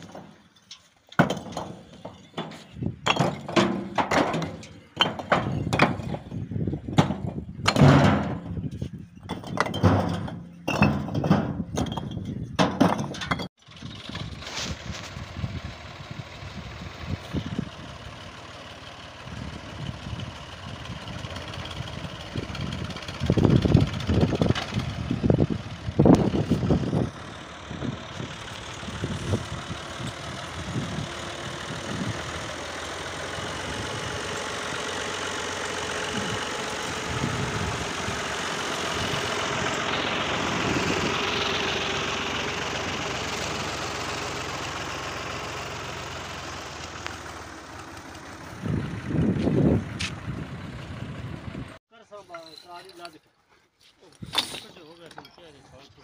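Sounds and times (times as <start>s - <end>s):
tractor diesel engine under load: 0.0s - 53.2s
loud low engine bursts: 13.6s - 51.8s.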